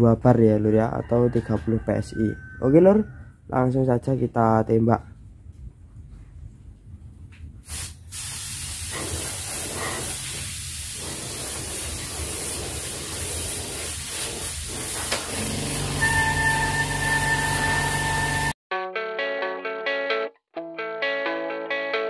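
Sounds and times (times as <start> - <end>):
spray gun air hiss: 7.6 - 18.5
music with held tones: 18.8 - 22.0.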